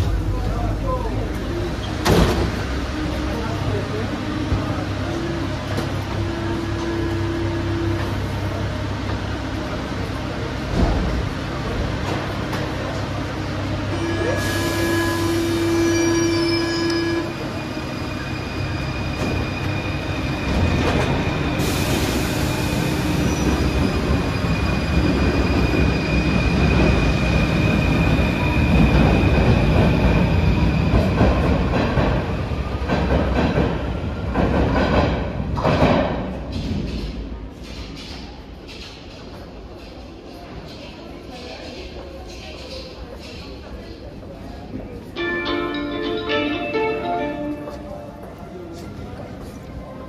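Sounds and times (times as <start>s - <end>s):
train wheels rumbling on rails: 0.0s - 45.2s
high wheel squeal: 14.0s - 20.1s.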